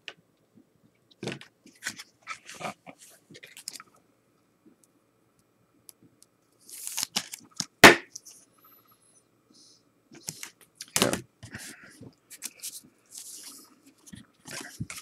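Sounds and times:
cards rustling and scraping: 0:01.7 - 0:03.8, 0:06.6 - 0:08.4, 0:12.3 - 0:15.0.

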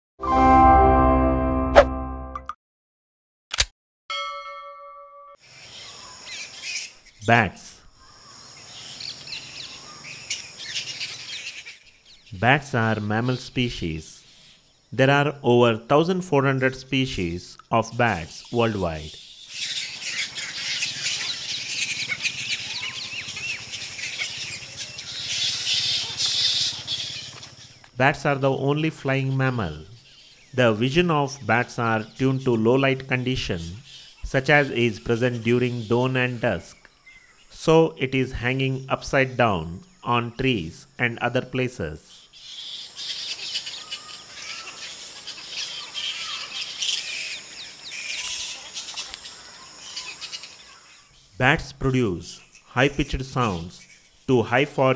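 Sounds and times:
bats chirping and squeaking: 0:05.5 - 0:13.6, 0:17.5 - 0:28.0, 0:42.2 - 0:51.4, 0:52.4 - 0:54.6.

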